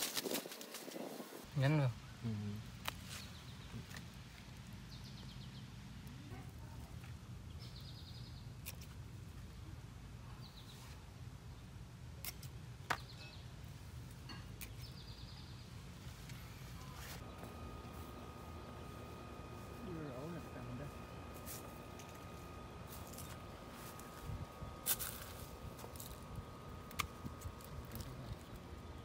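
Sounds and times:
steady low hum: 13.6s - 29.0s.

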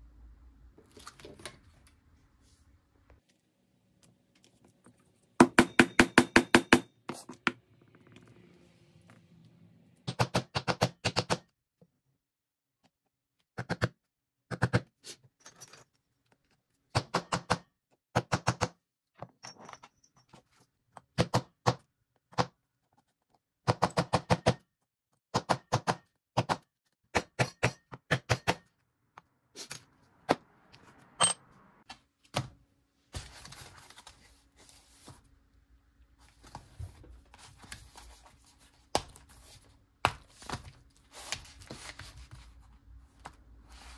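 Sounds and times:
hammer striking leather tools: 5.4s - 7.6s, 10.0s - 11.5s, 16.9s - 18.8s, 23.6s - 24.7s, 25.3s - 28.7s.

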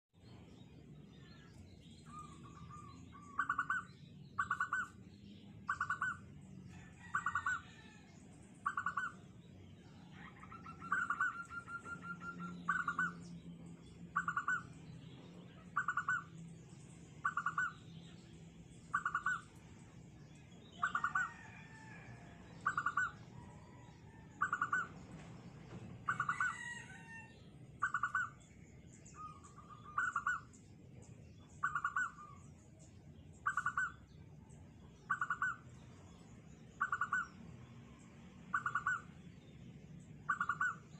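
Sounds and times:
faint high bird chirps: 0.2s - 9.3s, 9.9s - 39.4s, 40.2s - 40.9s.

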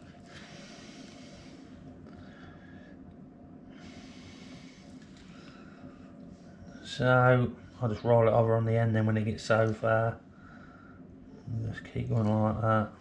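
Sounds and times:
low steady hum: 0.0s - 13.0s
man breathing through nose: 0.2s - 3.0s, 3.6s - 6.6s.

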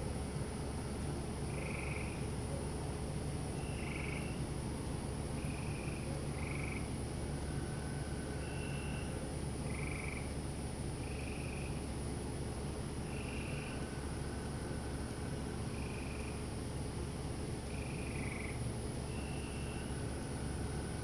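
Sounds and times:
low steady hum: 0.0s - 21.0s
cricket trill: 1.4s - 2.4s, 3.2s - 21.0s
frogs calling: 1.4s - 2.4s, 3.5s - 4.6s, 5.3s - 12.0s, 12.9s - 16.7s, 17.6s - 21.0s.

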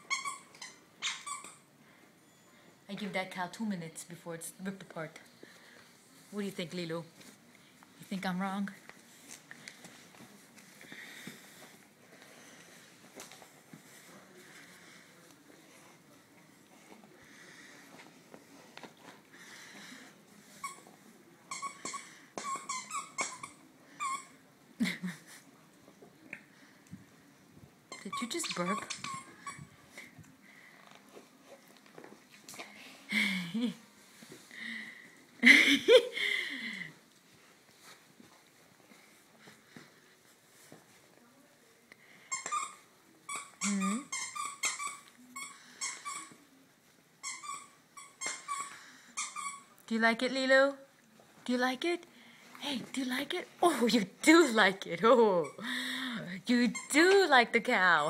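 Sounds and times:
dog toy squeaking: 0.0s - 1.6s, 21.5s - 24.4s, 27.9s - 29.7s, 42.3s - 46.4s, 47.2s - 49.7s, 56.6s - 57.1s.

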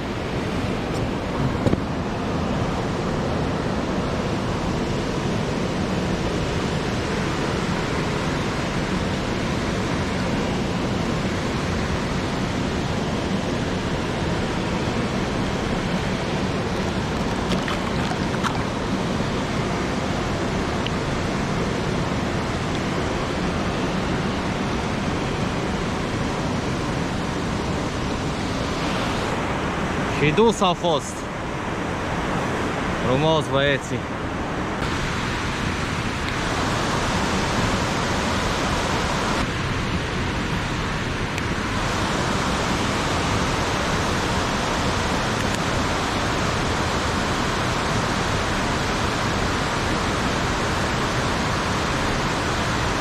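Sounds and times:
water rushing over a weir: 0.0s - 53.0s.

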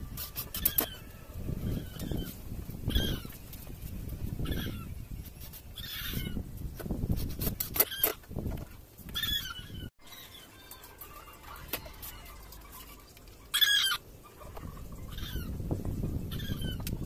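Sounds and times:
chickens clucking: 9.2s - 15.6s.

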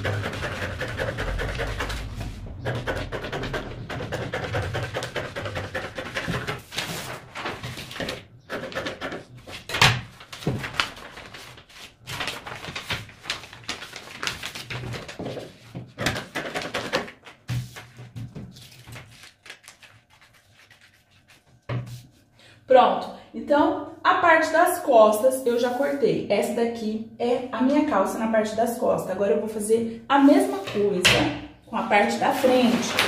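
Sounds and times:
paper rustling: 0.0s - 22.3s, 32.0s - 33.0s.

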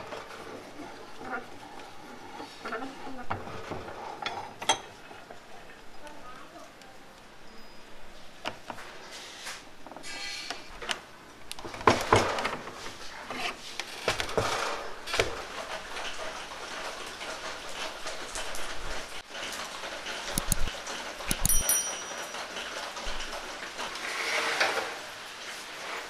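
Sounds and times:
metal clamps clicking and knocking: 20.3s - 22.4s.

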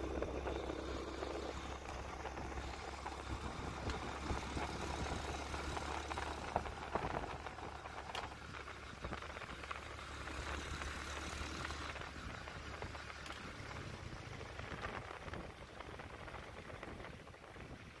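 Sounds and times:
small motorcycle engine running: 0.0s - 17.3s
road noise on gravel: 0.0s - 18.0s
wind: 0.0s - 18.0s.

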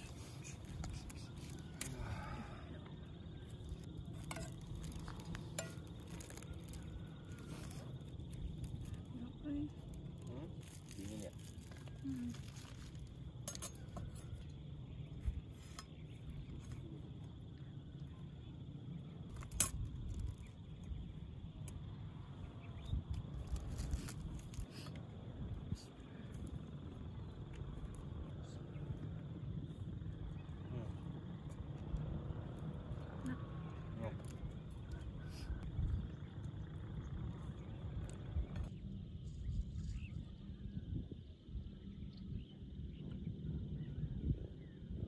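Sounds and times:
wind rumble on microphone: 19.1s - 45.0s.

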